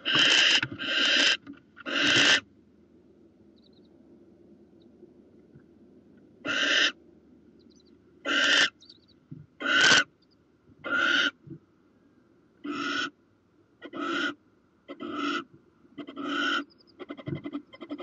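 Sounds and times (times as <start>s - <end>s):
owl rasping hisses: 0.0s - 2.4s, 6.5s - 6.9s, 9.6s - 10.0s.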